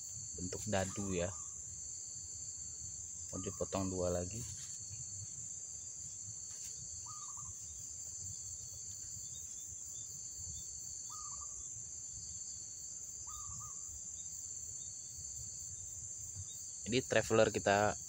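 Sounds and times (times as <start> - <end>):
insects chirping chorus: 0.0 - 18.0
bird chirping call: 0.4 - 1.6, 7.0 - 7.7, 11.0 - 11.6, 13.2 - 13.9.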